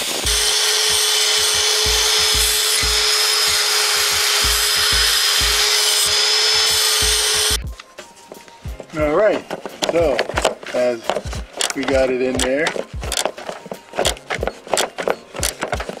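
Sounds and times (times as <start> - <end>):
electric drill boring through metal: 0.0 - 7.6.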